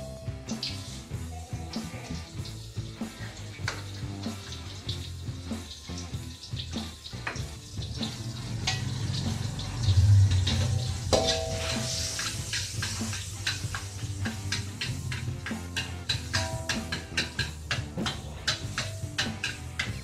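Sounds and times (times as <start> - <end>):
fat sizzling in a wok: 0.0 - 20.0
metal spatula scraping pan: 8.0 - 20.0.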